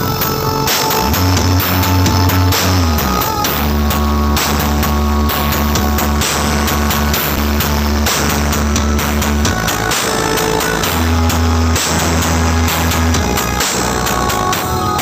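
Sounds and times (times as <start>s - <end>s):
deep pounding bass: 0.0s - 15.0s
loud music over loudspeakers: 0.0s - 15.0s.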